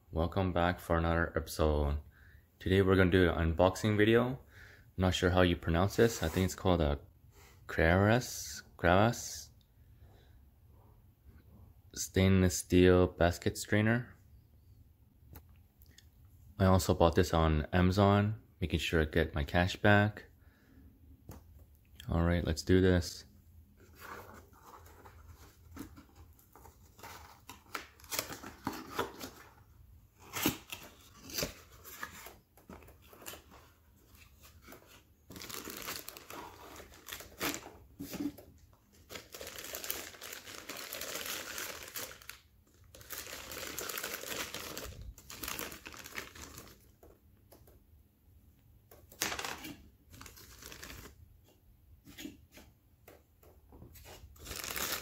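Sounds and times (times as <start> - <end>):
plastic bags crinkling: 35.3 - 37.6, 38.9 - 46.9, 49.2 - 51.1, 54.4 - 55.0.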